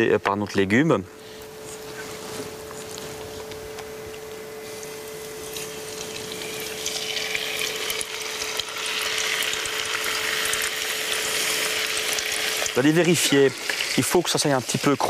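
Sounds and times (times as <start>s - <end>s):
oil sizzling and crackling: 4.6s - 15.0s.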